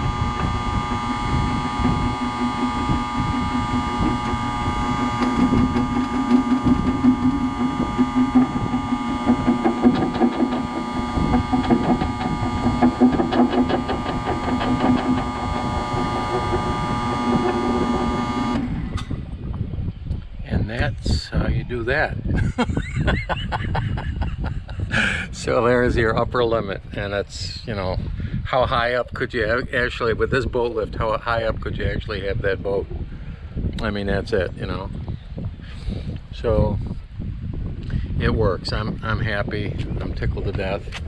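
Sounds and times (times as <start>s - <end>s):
electric lift motor humming: 0.0s - 19.4s.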